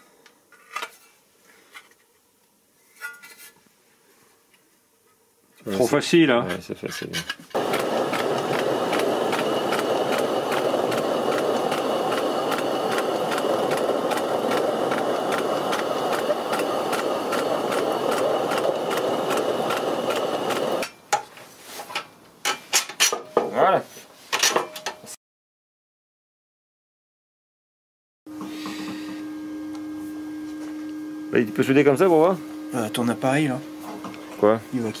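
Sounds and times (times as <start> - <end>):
grain mill motor whining: 7.6 - 20.9.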